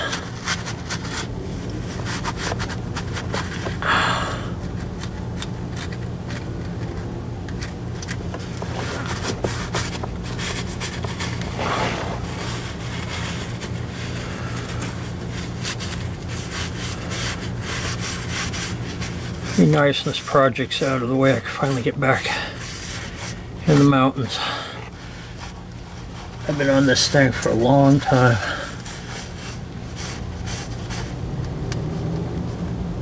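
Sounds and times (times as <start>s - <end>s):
steady low hum: 0.0s - 33.0s
cloth rag rubbing on metal: 8.6s - 31.2s.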